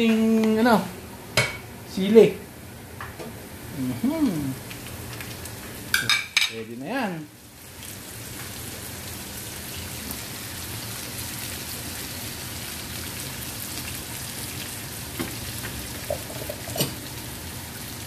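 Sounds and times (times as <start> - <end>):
garlic sizzling in hot oil: 4.5 - 18.0.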